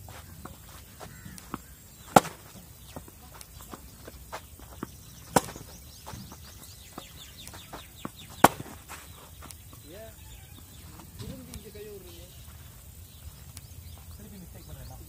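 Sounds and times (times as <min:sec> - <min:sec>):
footsteps shuffling on clay court: 0:00.0 - 0:15.0
tennis racket hitting ball: 0:00.4 - 0:09.0.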